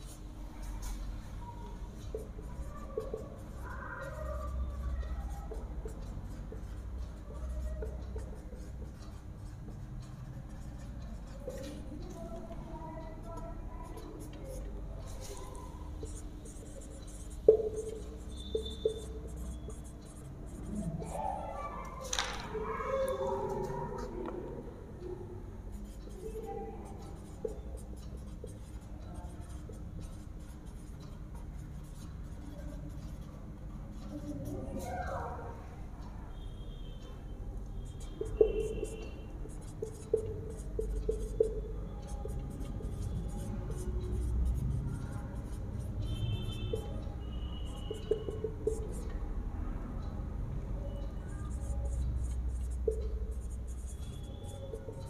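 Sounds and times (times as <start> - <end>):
marker squeaking on whiteboard: 0.8 - 12.3, 13.0 - 24.2, 25.8 - 33.3, 36.3 - 49.2, 50.7 - 55.0.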